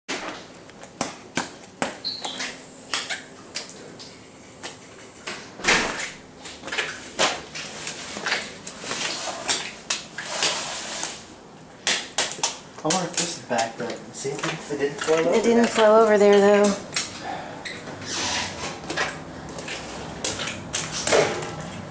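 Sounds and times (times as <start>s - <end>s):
footsteps on wet laminate floor: 12.2s - 21.9s.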